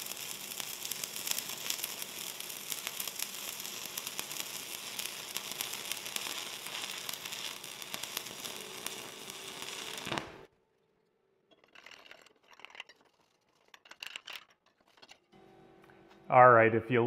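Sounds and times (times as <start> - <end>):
welding arc crackling: 0.0 - 10.5.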